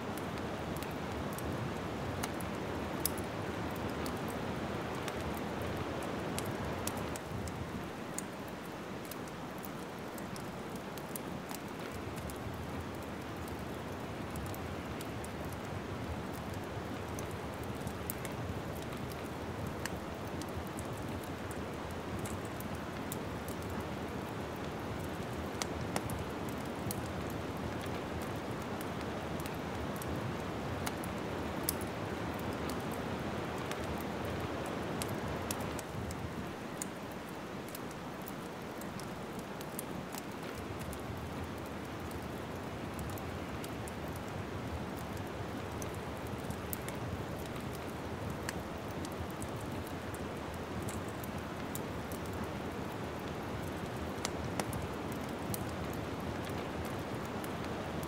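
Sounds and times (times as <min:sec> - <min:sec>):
wood fire crackling: 0:00.1 - 0:58.0
sharp pops and snaps of fire: 0:00.2 - 0:58.0.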